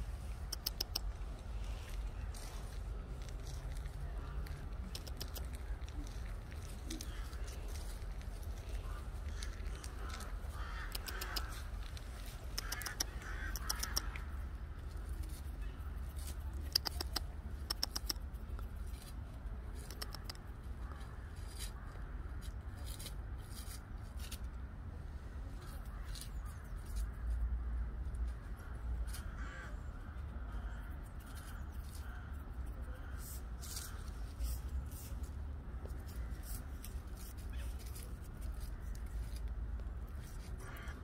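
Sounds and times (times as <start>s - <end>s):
squirrel rustling in dry leaves: 0.0s - 41.0s
faint bird calls: 8.6s - 14.4s.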